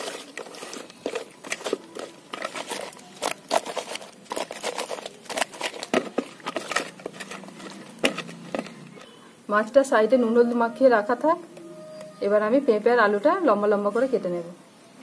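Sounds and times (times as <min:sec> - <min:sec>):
hands handling wet fish: 0:00.0 - 0:09.1.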